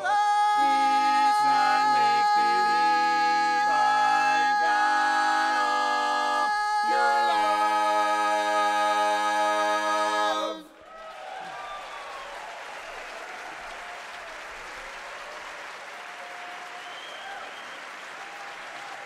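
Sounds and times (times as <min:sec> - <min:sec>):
quartet singing a cappella harmony: 0:00.0 - 0:10.8
audience applause: 0:00.6 - 0:19.0.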